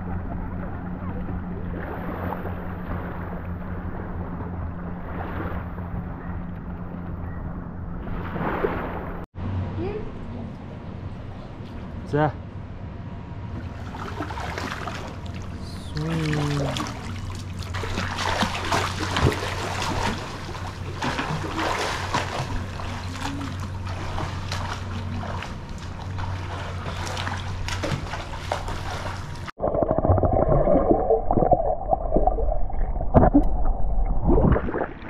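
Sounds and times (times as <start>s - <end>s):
underwater bubbling and rumbling: 0.0s - 9.3s, 13.6s - 35.0s
swimmer splashing in pool: 13.8s - 31.6s.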